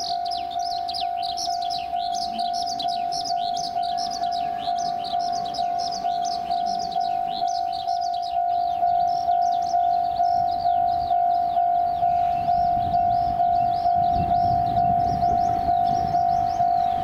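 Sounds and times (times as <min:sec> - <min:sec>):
birds chirping: 0:00.0 - 0:17.0
level crossing alarm ringing: 0:00.0 - 0:17.0.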